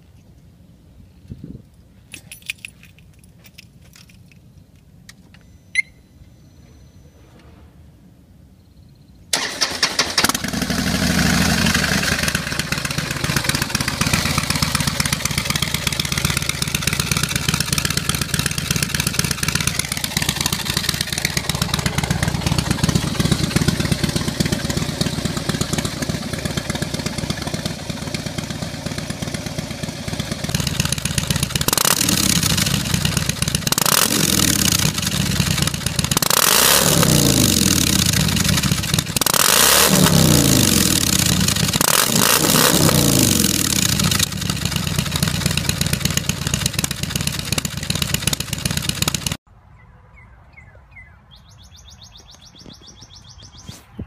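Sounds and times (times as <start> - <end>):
motorcycle engine idling: 9.4 - 49.4
motorcycle engine revving: 9.4 - 49.4.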